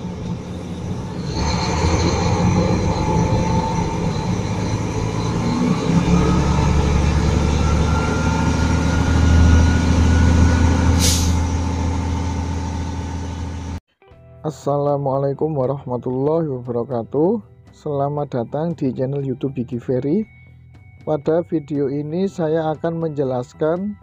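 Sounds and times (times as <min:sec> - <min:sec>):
diesel truck engine revving: 0:00.0 - 0:13.8
air hiss: 0:11.0 - 0:11.6.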